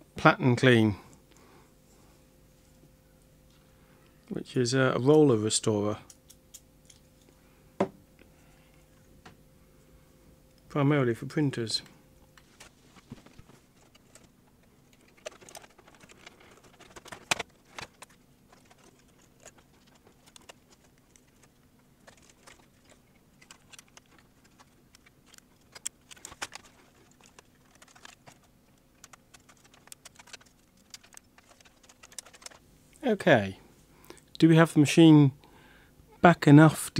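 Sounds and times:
plastic and metal parts clicking: 14.9 - 32.6.

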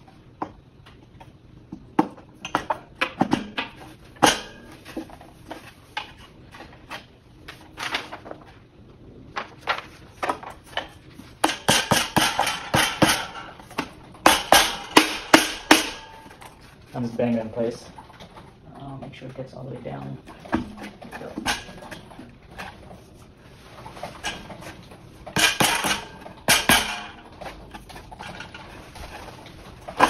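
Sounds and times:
furniture parts knocking together: 20.2 - 22.9.

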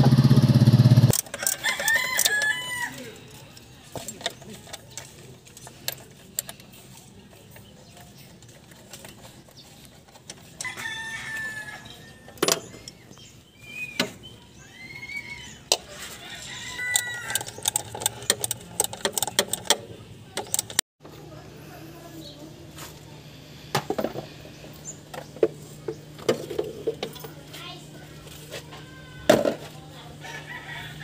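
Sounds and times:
rooster crowing: 1.3 - 3.2, 10.6 - 12.4, 14.6 - 17.7, 30.2 - 31.0
ratchet wrench clicking on bolts: 16.7 - 19.8, 20.4 - 20.8.

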